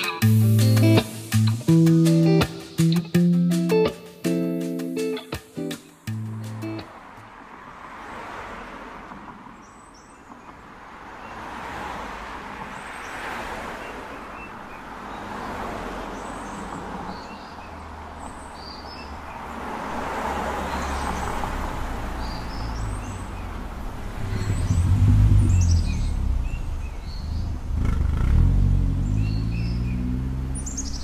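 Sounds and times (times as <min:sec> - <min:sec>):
road traffic passing: 0:00.0 - 0:31.0
small birds chirping: 0:09.5 - 0:11.4, 0:12.7 - 0:19.6, 0:20.6 - 0:28.2, 0:29.0 - 0:31.0
low rumble: 0:23.8 - 0:28.1.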